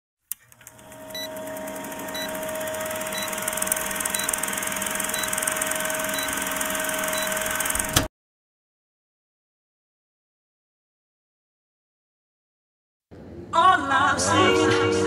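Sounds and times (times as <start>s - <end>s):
film projector whirring: 0.3s - 8.1s
short high beeps: 2.1s - 2.4s, 3.0s - 7.6s.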